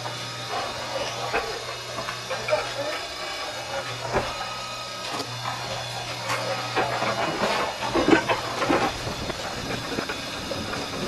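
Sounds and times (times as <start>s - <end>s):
conveyor motor hum: 0.0s - 11.0s.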